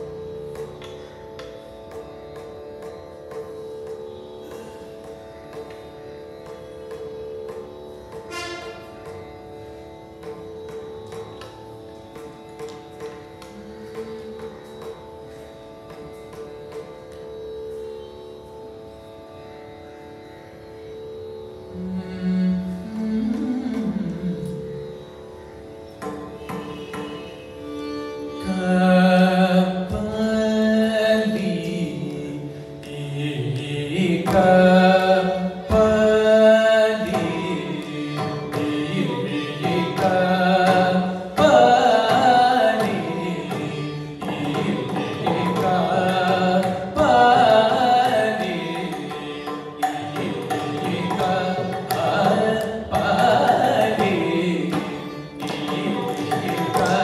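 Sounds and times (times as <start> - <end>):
violin: 0.0 - 57.0
man singing: 28.5 - 57.0.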